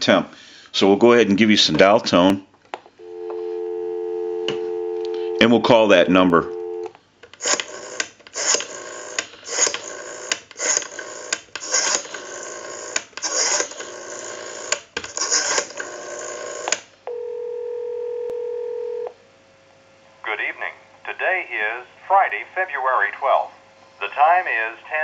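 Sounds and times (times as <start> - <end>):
telephone ringback tone: 3.0 - 6.9, 17.1 - 19.1
rotary phone dial whirring: 7.4 - 16.9.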